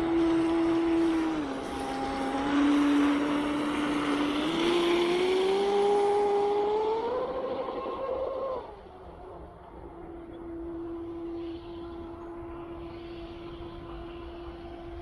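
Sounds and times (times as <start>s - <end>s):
electric motor whining: 0.0s - 9.1s
hull hissing across water: 10.6s - 15.0s.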